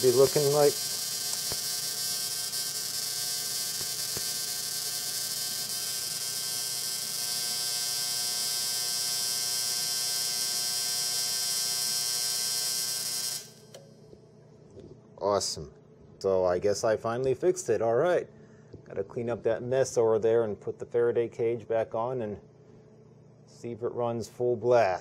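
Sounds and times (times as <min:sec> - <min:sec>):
tesla coil buzzing: 0:00.0 - 0:13.9.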